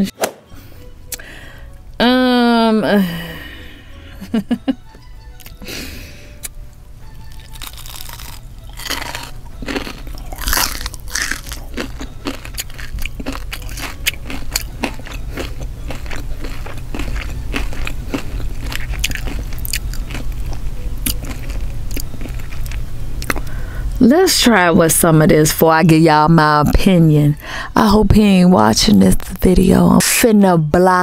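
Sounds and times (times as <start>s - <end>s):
crunchy biting and chewing: 7.2s - 23.6s.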